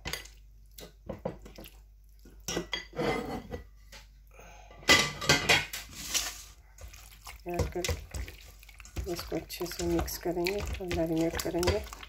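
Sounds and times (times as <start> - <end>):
metal bowl clattering: 4.9 - 12.0.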